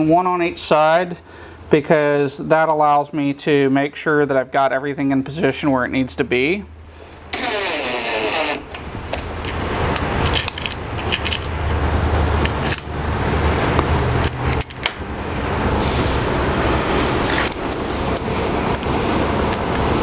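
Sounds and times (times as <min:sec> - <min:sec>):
low background hum: 0:00.0 - 0:20.0
cordless drill whirring: 0:07.3 - 0:08.8
metal clinks of screws: 0:09.4 - 0:11.8, 0:12.4 - 0:12.9, 0:14.2 - 0:14.9.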